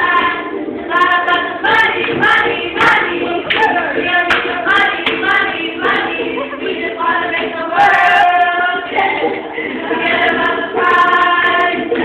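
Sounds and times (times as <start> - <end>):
girls singing in unison: 0.0 - 12.0
hand claps: 4.3 - 5.3.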